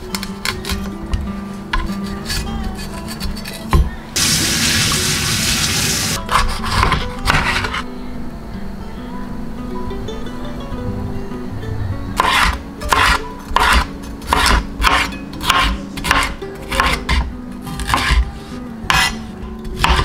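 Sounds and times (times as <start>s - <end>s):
knife slicing peppers on board: 1.8s - 3.9s, 6.3s - 7.8s, 12.2s - 20.0s.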